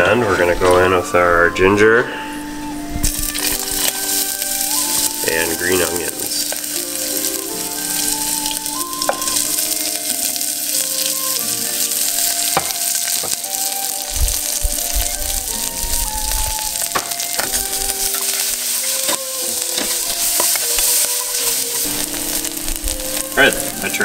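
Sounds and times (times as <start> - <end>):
onions sizzling in oil: 3.0 - 24.0
wooden spoon knocking pan: 3.3 - 11.2, 11.8 - 14.9, 16.8 - 24.0.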